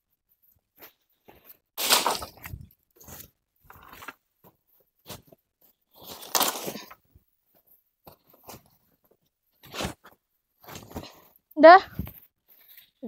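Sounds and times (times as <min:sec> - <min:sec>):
footsteps crunching dry leaves: 0:01.8 - 0:02.6.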